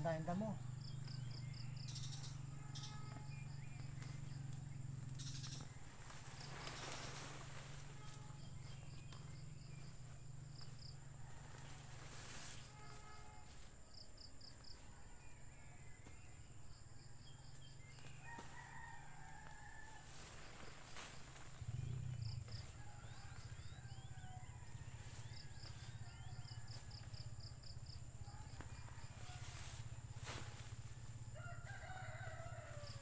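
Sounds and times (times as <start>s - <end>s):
small birds chirping: 0.0s - 7.4s
rooster crowing faintly: 18.1s - 33.0s.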